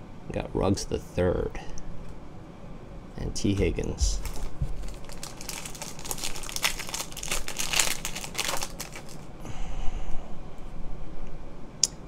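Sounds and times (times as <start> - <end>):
foil wrapper tearing and crinkling: 4.2 - 9.3.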